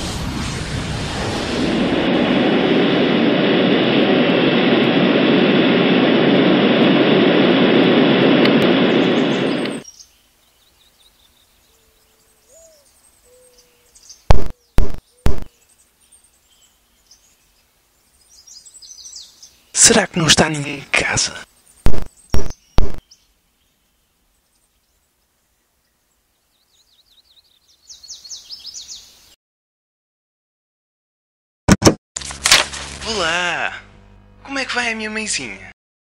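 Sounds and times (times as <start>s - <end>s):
loud rushing noise: 0.0s - 9.8s
faint bird chirps: 9.1s - 19.8s, 21.5s - 29.3s.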